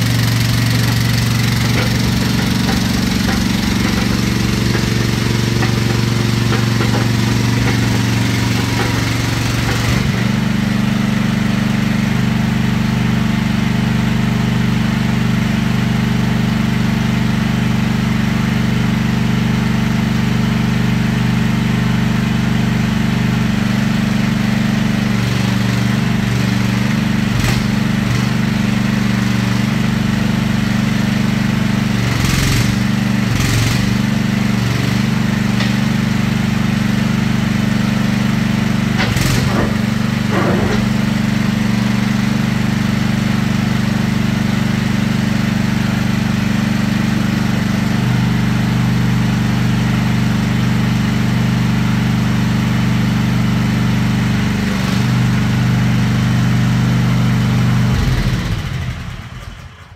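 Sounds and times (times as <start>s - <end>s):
excavator engine idling: 0.0s - 59.9s
short knocks: 0.1s - 10.5s, 39.0s - 41.2s.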